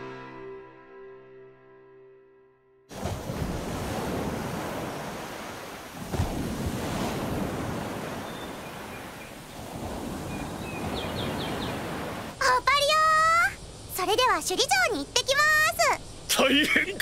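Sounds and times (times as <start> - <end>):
waves washing onto beach: 2.9 - 14.7.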